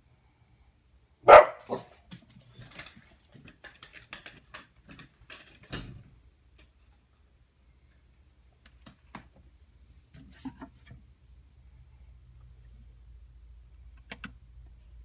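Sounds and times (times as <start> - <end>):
dog barking: 1.2 - 2.0.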